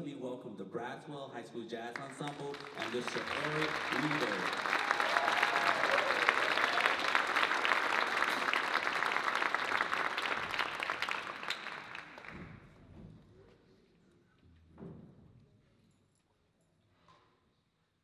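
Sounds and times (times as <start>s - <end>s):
audience applauding: 2.0s - 12.5s.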